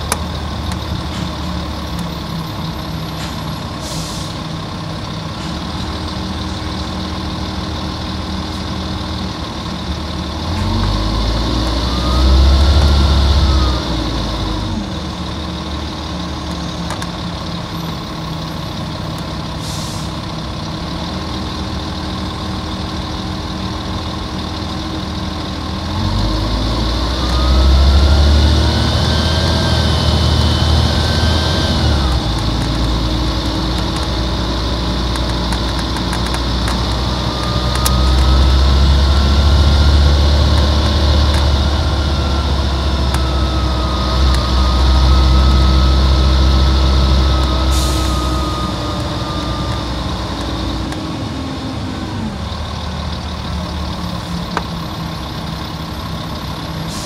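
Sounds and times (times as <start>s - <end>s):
bus diesel engine: 0.0s - 57.0s
engine whine: 0.0s - 57.0s
air hiss: 3.8s - 4.5s.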